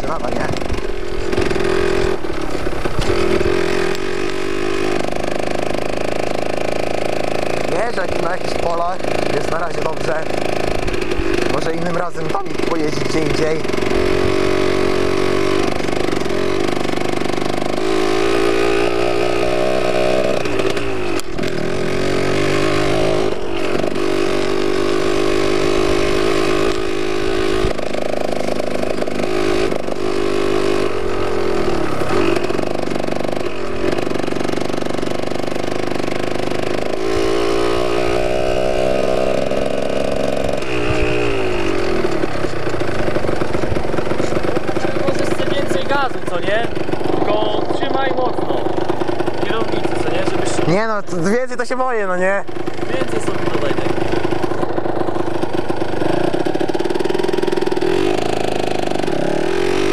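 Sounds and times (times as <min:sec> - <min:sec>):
two-stroke motorcycle engine revving: 0:00.0 - 0:59.9.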